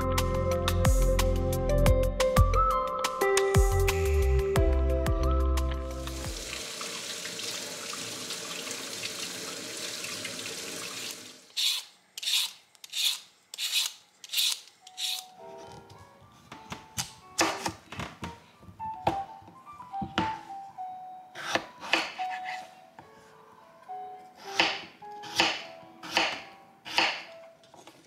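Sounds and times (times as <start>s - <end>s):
music: 0.0s - 6.8s, 14.8s - 28.0s
peeler scraping potato: 11.5s - 15.3s.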